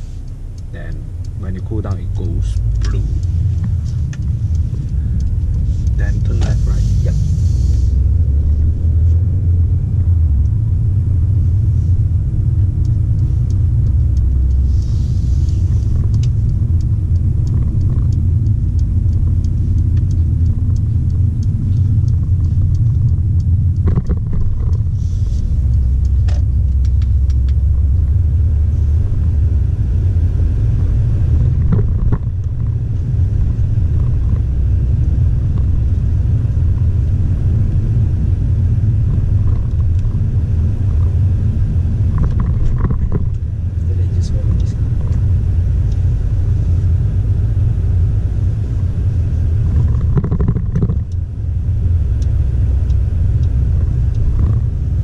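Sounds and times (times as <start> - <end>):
car road and engine noise: 0.0 - 55.0
faint light clicks: 0.2 - 9.3, 10.0 - 28.2.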